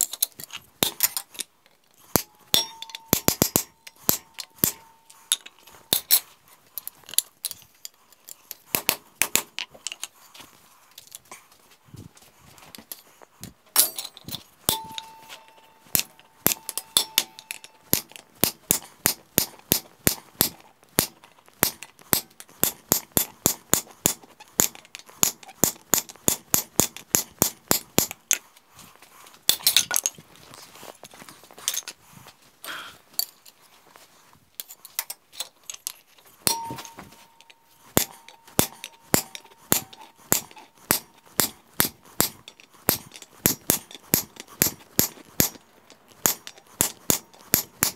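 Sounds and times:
hammer striking chisel on steel: 2.2s - 6.2s, 13.8s - 28.1s, 36.5s - 45.6s, 46.2s - 47.9s
metal ringing: 2.2s - 6.2s, 13.8s - 18.2s, 36.5s - 41.2s.

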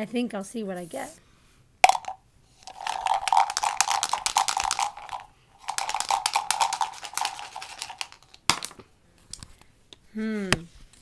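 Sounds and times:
dice rattling: 1.8s - 8.8s.

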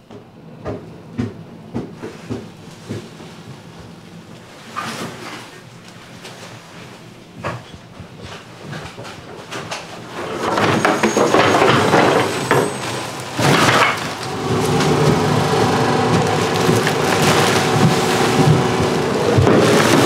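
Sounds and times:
plastic bags rustling: 10.0s - 20.0s.

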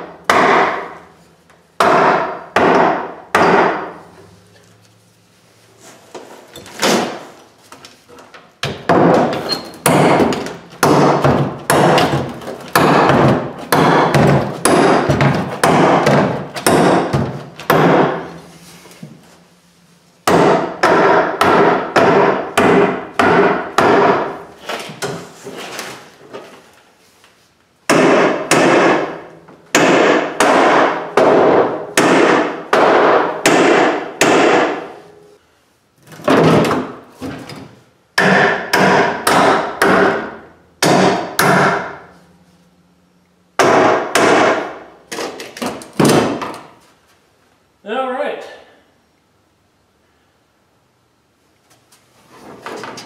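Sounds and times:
sledge hammer striking metal: 0.0s - 1.0s, 1.8s - 4.0s, 8.7s - 18.4s, 20.2s - 24.4s, 27.9s - 35.3s, 38.2s - 42.3s, 43.6s - 44.9s.

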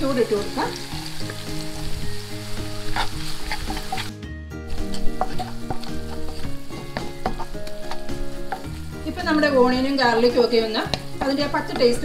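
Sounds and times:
onions and garlic sizzling in oil: 0.0s - 12.0s
wooden spatula scraping pan: 2.8s - 4.1s, 4.8s - 12.0s.

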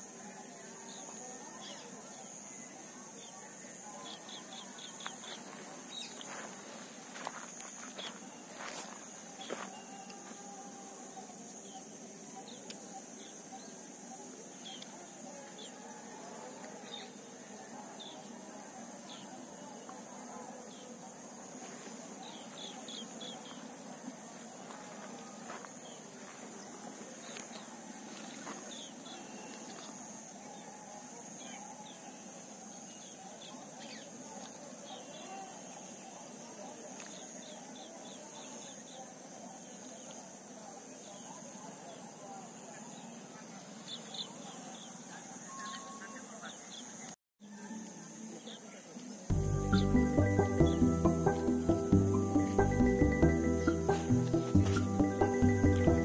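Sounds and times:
insect drone: 0.0s - 56.0s
steady high hiss: 47.9s - 56.0s
bird chirps: 49.3s - 56.0s.

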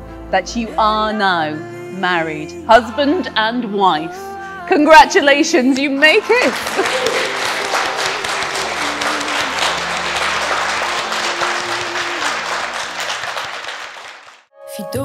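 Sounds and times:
audience applauding: 5.9s - 14.5s.

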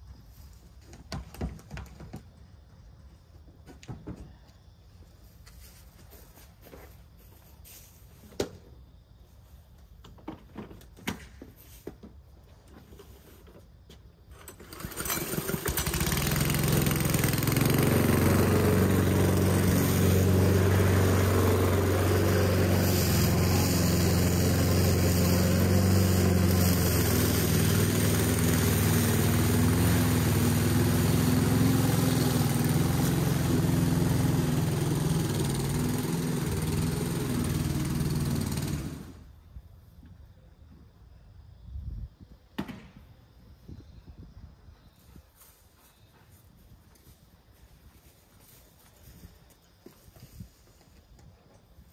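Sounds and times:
lawn mower engine running: 14.3s - 39.5s.

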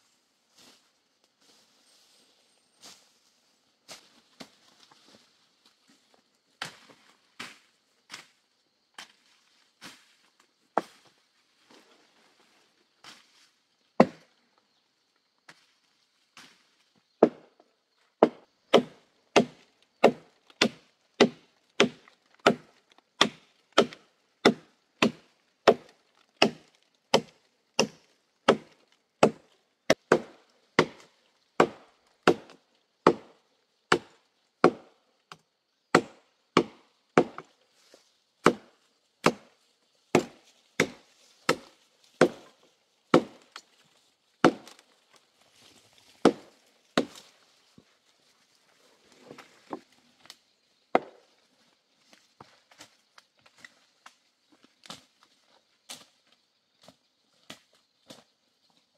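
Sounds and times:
machete chopping wood: 18.2s - 33.3s, 33.9s - 34.9s, 35.9s - 37.5s, 38.4s - 39.5s, 40.1s - 42.5s, 43.1s - 43.6s, 44.4s - 44.8s, 46.2s - 47.3s, 50.9s - 51.2s.

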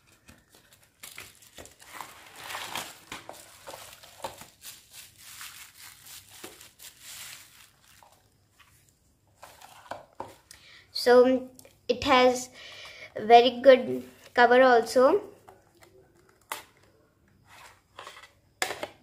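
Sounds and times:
bubble wrap crinkling: 0.0s - 9.8s.

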